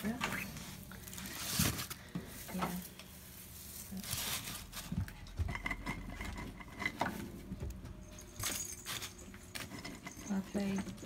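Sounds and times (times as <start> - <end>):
dry hay rustling and crackling: 0.0 - 5.0.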